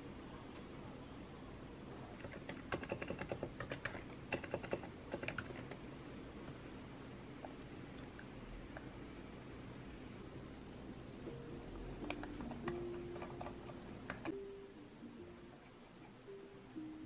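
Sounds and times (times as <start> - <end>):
keyboard typing: 2.1 - 5.8.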